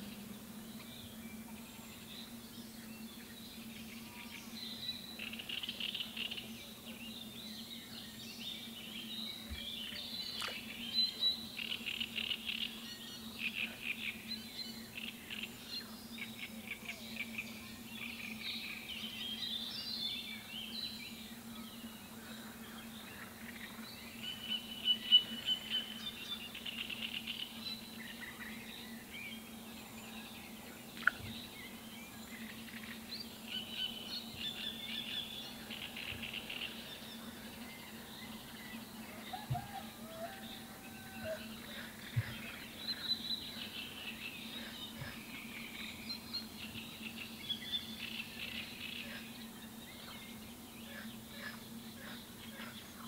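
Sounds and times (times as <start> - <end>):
birds chirping and trilling: 0.0 - 53.0.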